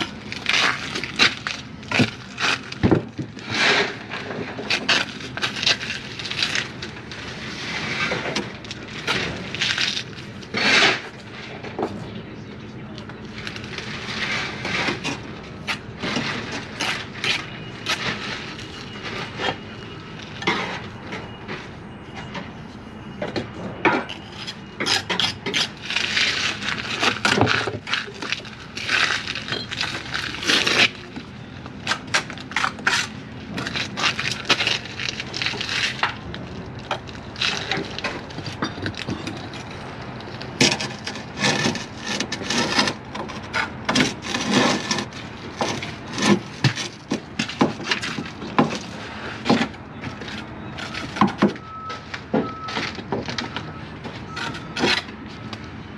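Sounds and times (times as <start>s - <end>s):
trowel scraping on bricks: 9.1s - 11.1s, 36.9s - 49.6s.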